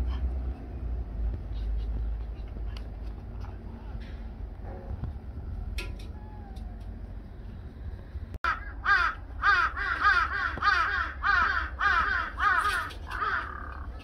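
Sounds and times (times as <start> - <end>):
crow cawing: 8.4 - 14.0.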